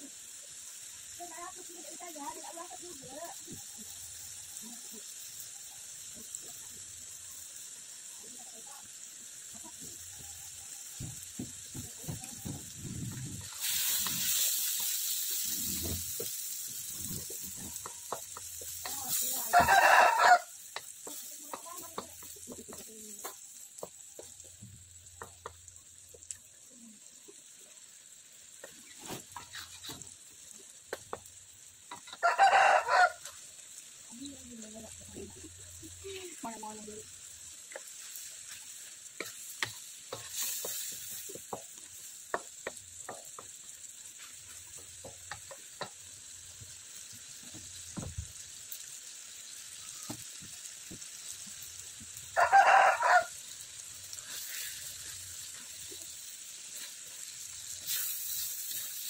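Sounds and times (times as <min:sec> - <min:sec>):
food sizzling: 0:00.0 - 0:59.0
wooden spatula scraping a wok: 0:11.2 - 0:20.0, 0:28.6 - 0:30.2, 0:37.6 - 0:45.9, 0:54.1 - 0:59.0
rooster crowing: 0:19.4 - 0:20.5, 0:32.1 - 0:33.3, 0:52.3 - 0:53.4.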